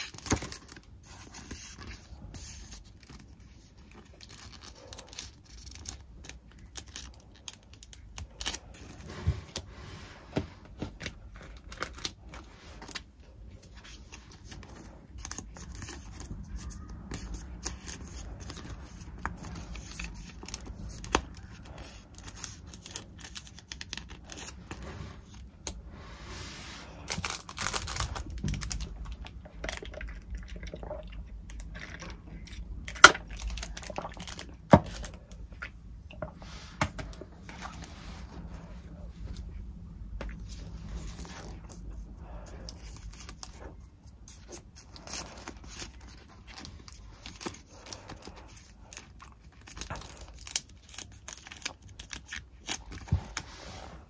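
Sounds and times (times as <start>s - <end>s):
packaging crinkling and tearing: 0.0s - 9.7s, 10.8s - 25.7s, 27.0s - 35.4s, 42.6s - 53.6s.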